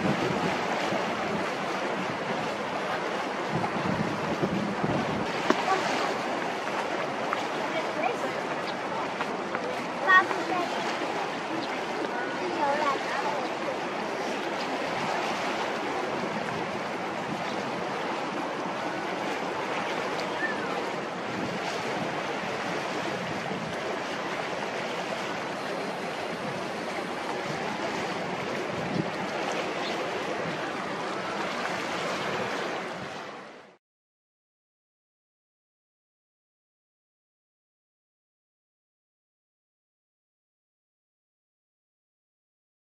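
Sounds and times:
water washing: 0.0s - 33.5s
wind: 0.0s - 33.8s.

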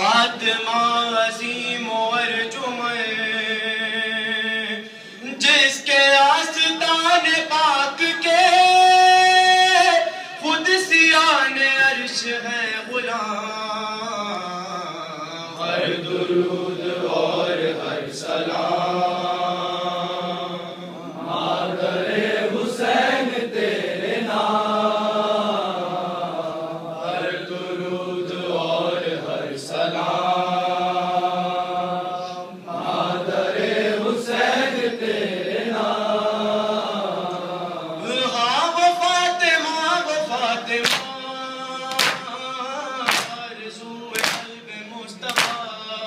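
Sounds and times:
man chanting a lament: 0.0s - 21.7s, 38.0s - 46.0s.

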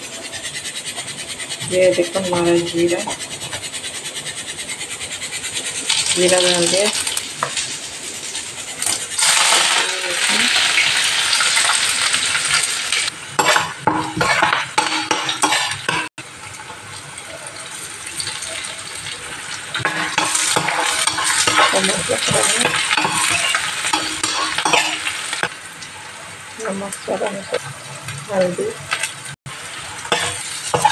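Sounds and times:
spatula scraping a pan: 0.0s - 12.6s, 13.4s - 16.1s, 19.7s - 25.5s, 30.0s - 30.9s
vegetables sizzling in hot oil: 0.1s - 30.9s.

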